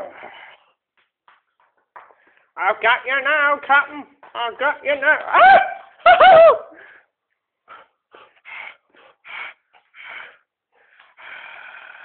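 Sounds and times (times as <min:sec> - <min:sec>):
dog breathing hard: 0:07.6 - 0:12.0.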